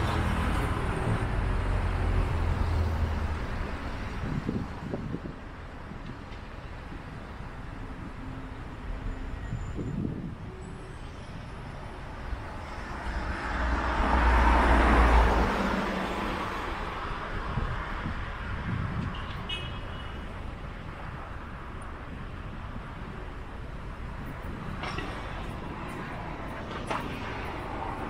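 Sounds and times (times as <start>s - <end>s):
background traffic noise: 0.0s - 28.0s
vehicle passing by: 13.2s - 16.9s.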